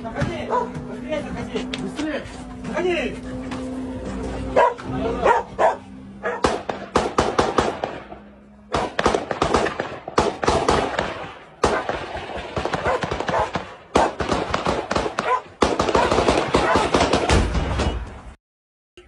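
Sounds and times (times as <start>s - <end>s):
rapid gunfire: 6.4s - 17.8s.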